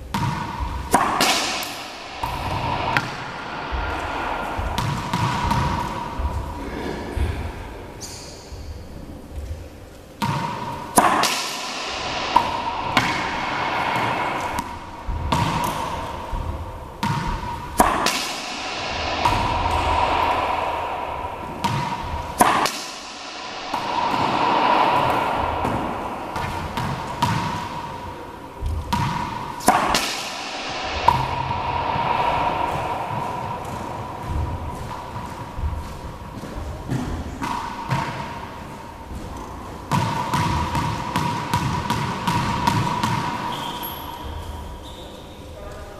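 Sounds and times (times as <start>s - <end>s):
racquet hitting ball: 0.0s - 8.5s, 10.2s - 44.9s
humming tone: 0.4s - 7.4s, 10.6s - 36.7s
ball bouncing off wall and floor: 10.2s - 20.2s.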